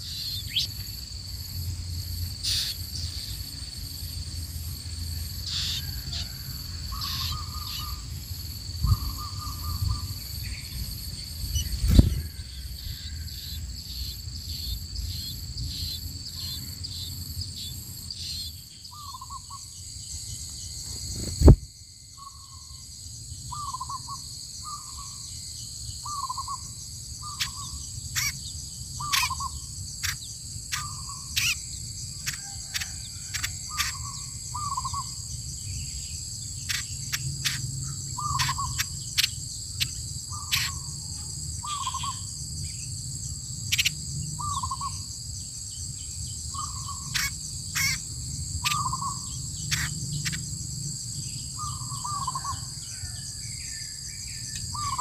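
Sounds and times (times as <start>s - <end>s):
crickets and insects droning: 0.0s - 55.0s
sharp thump: 21.2s - 21.7s.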